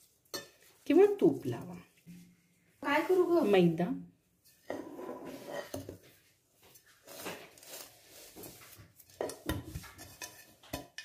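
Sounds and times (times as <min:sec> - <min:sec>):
flour scraping over metal pot: 0:04.4 - 0:11.0.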